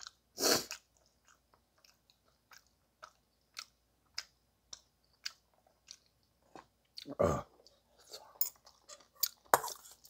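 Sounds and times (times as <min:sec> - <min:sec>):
chewing with wet mouth clicks: 0:00.0 - 0:07.8.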